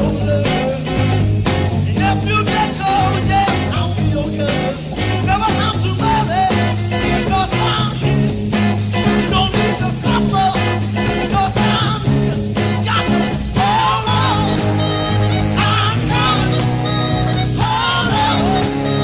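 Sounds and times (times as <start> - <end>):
upbeat band music: 0.0 - 19.0.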